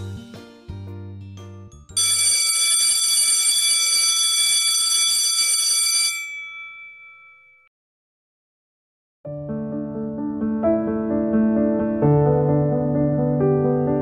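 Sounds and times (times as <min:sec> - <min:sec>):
electric bell ringing: 0:02.0 - 0:07.7.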